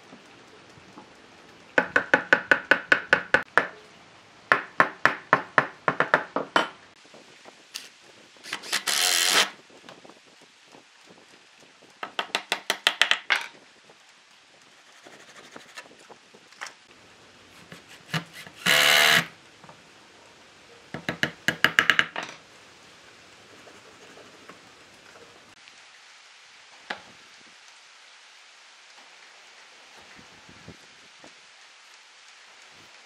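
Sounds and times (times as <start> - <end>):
small power tool whir: 7.8 - 9.6, 17.6 - 19.4.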